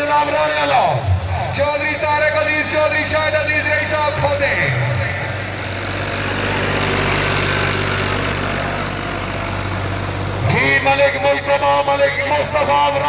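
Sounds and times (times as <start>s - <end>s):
man's voice: 0.0s - 5.3s, 10.4s - 13.0s
tractor diesel engine passing: 0.0s - 13.0s.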